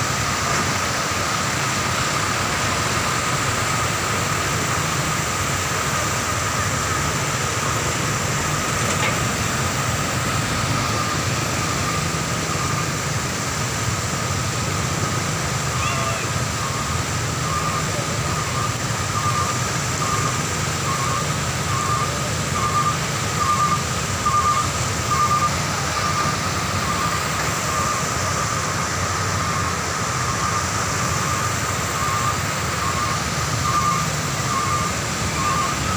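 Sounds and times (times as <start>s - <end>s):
floodwater rushing: 0.0s - 35.9s
truck engine running: 0.0s - 35.9s
electronic beep: 15.8s - 28.0s, 29.4s - 35.9s.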